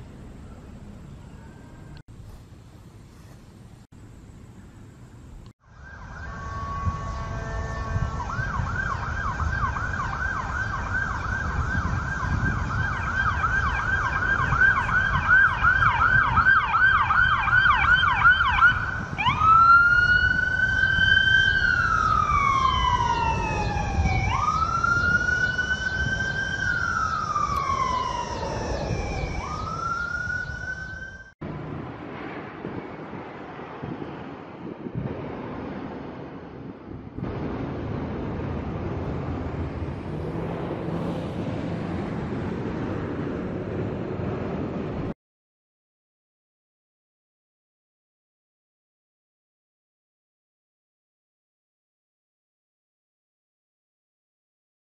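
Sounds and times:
low rumble of traffic: 0.0s - 45.2s
ambulance siren: 0.5s - 2.0s, 5.6s - 31.4s.

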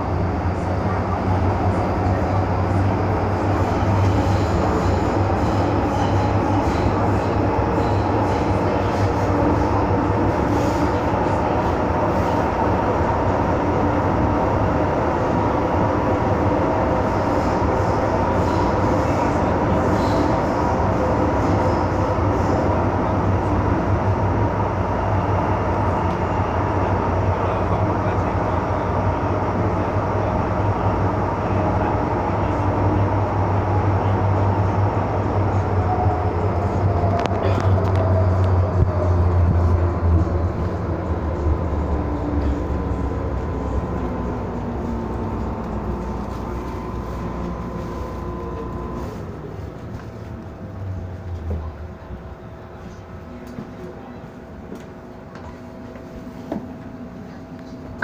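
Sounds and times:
train cabin rumble: 0.0s - 58.0s.

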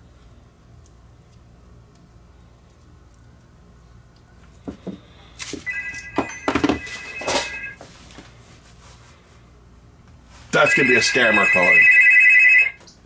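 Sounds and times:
objects knocking on wooden workbench: 4.6s - 5.6s, 6.2s - 7.4s
phone ringtone: 5.7s - 7.8s, 10.6s - 12.8s.

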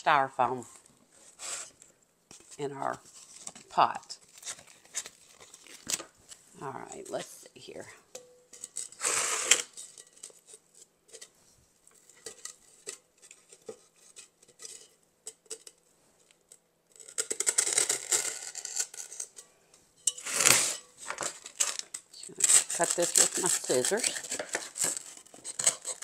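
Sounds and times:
scissors cutting floral foam: 22.2s - 26.0s.

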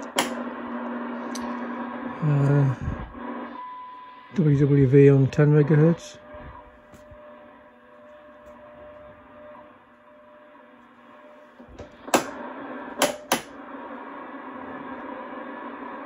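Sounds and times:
radio receiver hiss: 0.0s - 3.6s.

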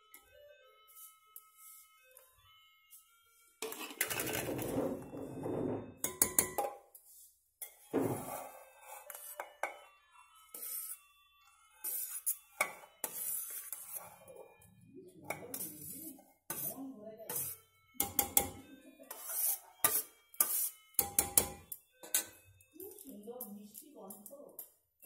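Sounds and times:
steel cookware clinking and scraping: 3.6s - 5.4s, 6.0s - 7.0s, 7.6s - 9.9s, 10.5s - 11.0s, 11.8s - 14.4s, 15.3s - 24.7s.

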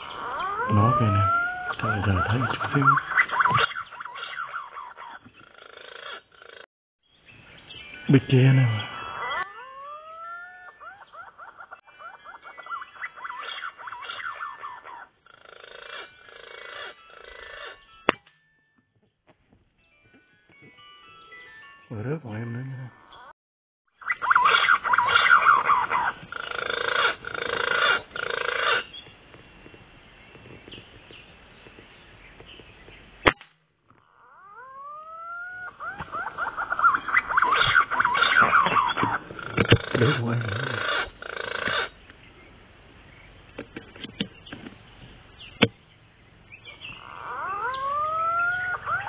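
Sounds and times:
rough animal calls: 0.0s - 6.7s, 8.7s - 17.9s, 24.0s - 29.1s, 33.9s - 45.8s, 46.5s - 49.0s
rising whistled bird calls: 46.5s - 49.0s.

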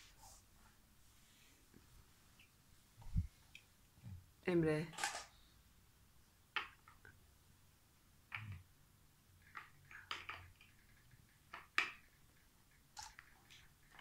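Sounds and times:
plastic bricks clicking: 9.4s - 12.2s.

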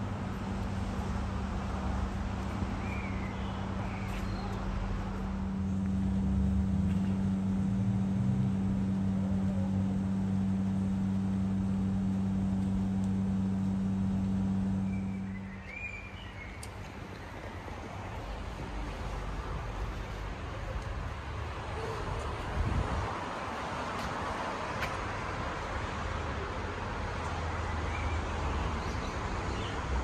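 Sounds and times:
mechanical hum: 4.6s - 16.6s.

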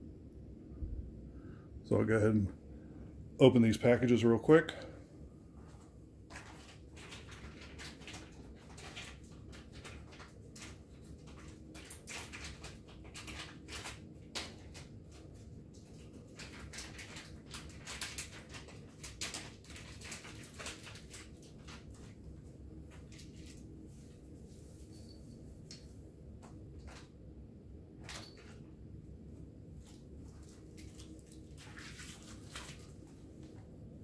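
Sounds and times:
packaging crinkling and rustling: 5.7s - 26.0s, 29.8s - 33.6s.

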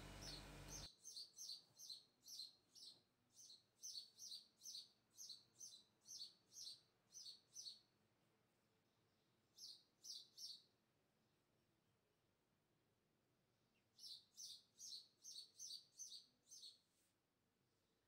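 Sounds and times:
low steady hum: 0.0s - 0.9s
small bird chirping: 0.0s - 8.0s, 8.9s - 10.8s, 13.6s - 17.1s.

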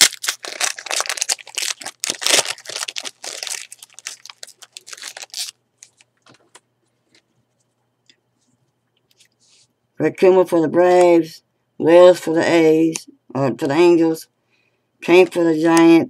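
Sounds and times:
plastic wrapper crinkling and tearing: 0.0s - 6.1s.

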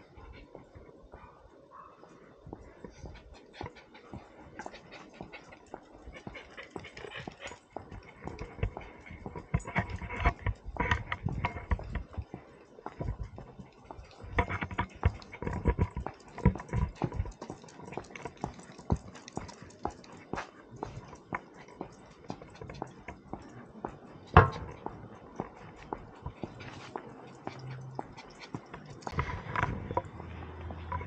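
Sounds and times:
clicks and scuffs: 2.6s - 31.0s
small dog making sounds: 3.0s - 8.1s.

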